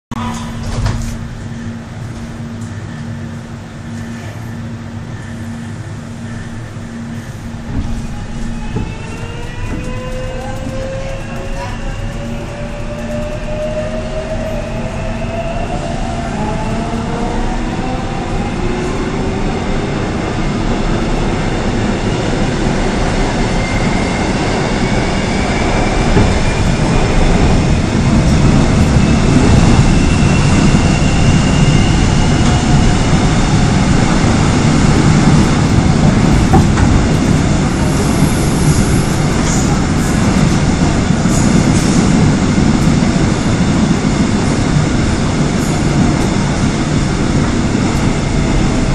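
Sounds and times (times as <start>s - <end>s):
train wheels rumbling on rails: 0.2s - 48.9s
high squeal: 28.9s - 33.1s.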